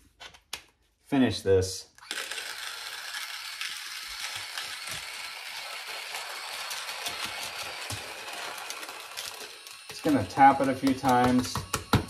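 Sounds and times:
electric coffee grinder running: 2.0s - 12.0s.

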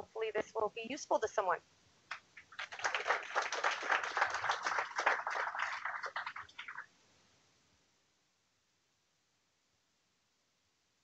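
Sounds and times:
audience applauding: 2.1s - 6.9s.

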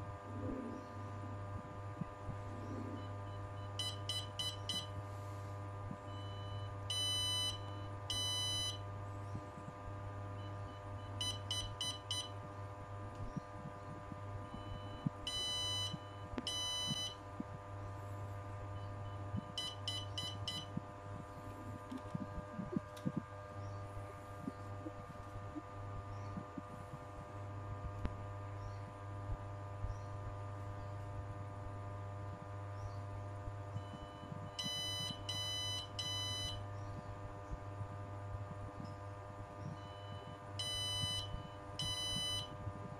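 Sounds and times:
steady low hum: 0.0s - 42.9s
electronic buzzer beeping: 1.4s - 27.3s, 33.6s - 37.2s, 39.4s - 42.9s.

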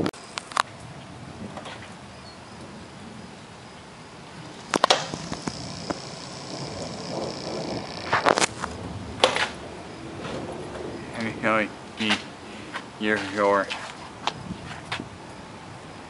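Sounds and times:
steady wind noise: 0.0s - 16.0s
sharp cracks: 4.4s - 10.6s.

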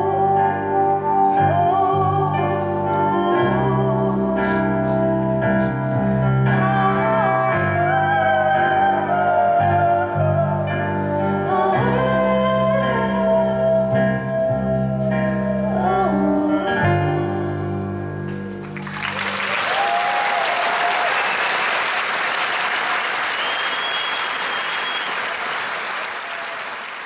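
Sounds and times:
audience applause and cheers: 18.6s - 27.0s
shrill whistle: 23.2s - 25.7s.

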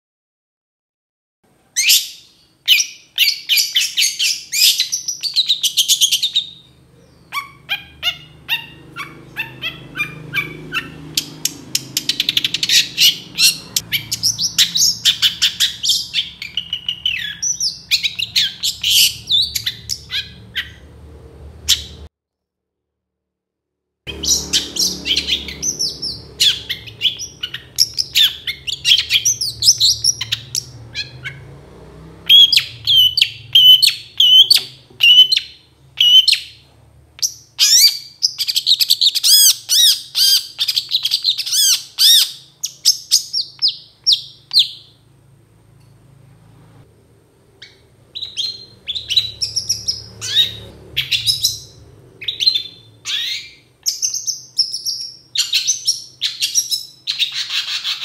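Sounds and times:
bird singing sharp chirps: 1.8s - 20.9s, 24.1s - 31.5s, 32.2s - 36.6s, 47.6s - 58.0s.

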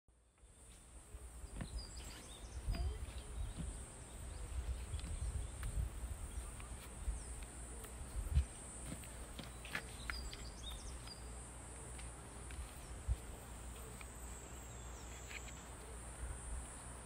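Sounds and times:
bird chirps: 0.4s - 6.6s, 9.4s - 11.4s
low rumble on microphone: 1.4s - 7.4s.

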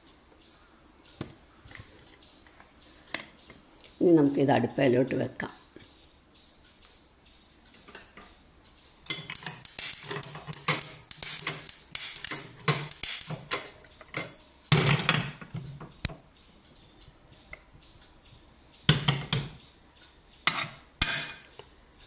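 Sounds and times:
pressure cooker clanking on grate: 9.1s - 15.5s
gas lighter clicking: 9.4s - 13.4s.

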